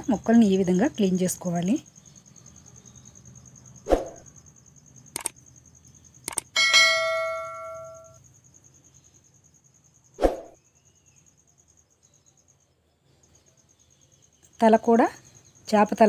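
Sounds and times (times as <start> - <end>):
crickets chirping: 0.0 - 16.0
mouse clicks: 5.2 - 5.4, 6.3 - 6.5
bell ding: 6.6 - 8.2.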